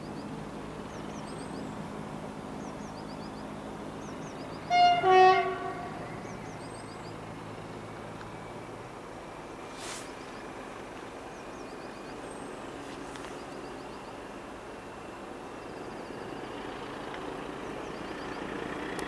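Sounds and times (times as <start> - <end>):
diesel locomotive engine idling: 0.0 - 19.0
two-tone locomotive horn: 4.7 - 6.2.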